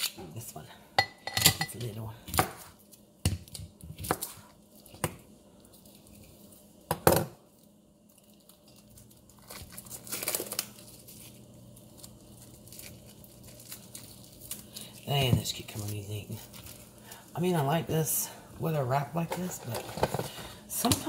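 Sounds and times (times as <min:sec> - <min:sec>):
plastic wrap crinkling and tearing: 0:07.4 - 0:17.5.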